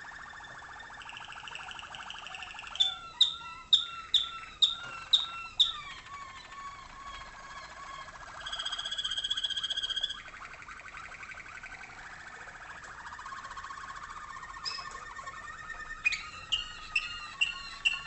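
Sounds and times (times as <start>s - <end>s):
canary song: 0.0s - 18.0s
high-pitched canary trill: 0.0s - 18.0s
sharp clipped bird notes: 8.4s - 18.0s.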